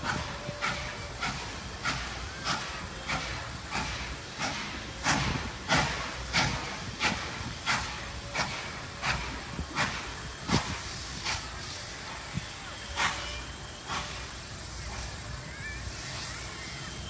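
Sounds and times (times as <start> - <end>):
steam locomotive chuffing: 0.0 - 17.0.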